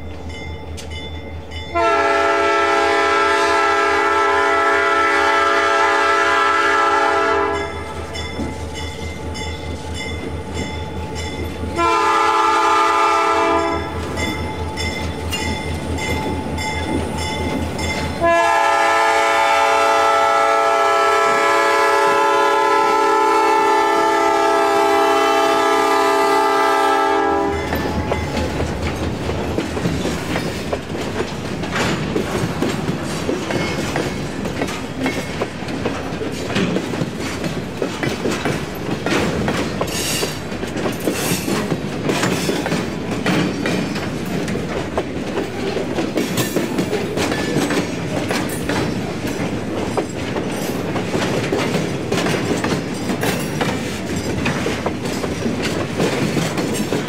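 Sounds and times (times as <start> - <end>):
train wheels clicking on rails: 0.0 - 57.0
locomotive horn chord: 1.7 - 7.8, 11.8 - 13.9, 18.2 - 27.7.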